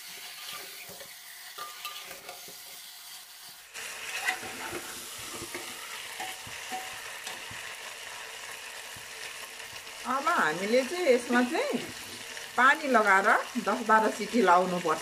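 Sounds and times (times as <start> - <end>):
spatula scraping a pot: 0.0 - 3.2, 3.8 - 7.8
food sizzling in a pot: 0.0 - 15.0.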